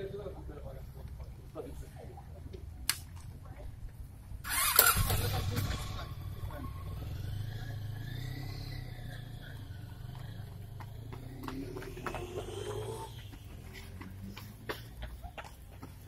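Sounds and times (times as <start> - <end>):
running footsteps on asphalt: 9.0 - 16.0.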